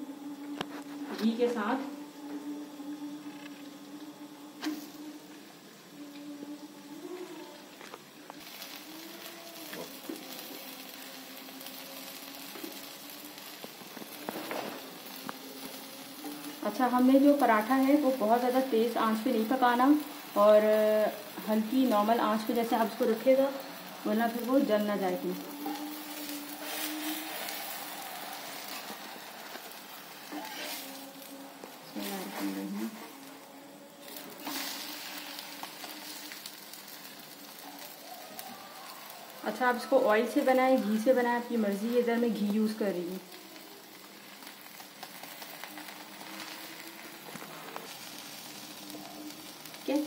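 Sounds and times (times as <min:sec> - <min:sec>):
flatbread sizzling on hot iron: 0:00.0 - 0:50.0.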